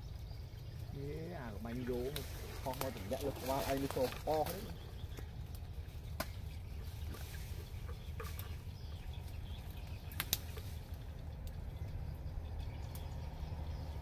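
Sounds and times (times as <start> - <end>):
low steady rumble: 0.0 - 14.0
pruning shears snipping twigs: 2.0 - 4.8, 10.1 - 10.8.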